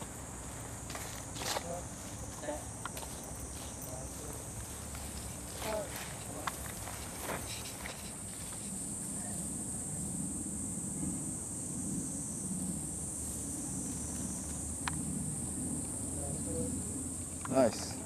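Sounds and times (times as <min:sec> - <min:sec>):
insects buzzing: 0:00.0 - 0:18.0
low outdoor rumble: 0:04.2 - 0:18.0.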